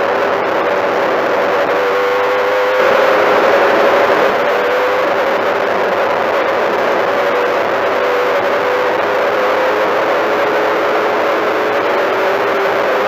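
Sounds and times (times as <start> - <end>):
race car engine at high revs: 2.8 - 13.0.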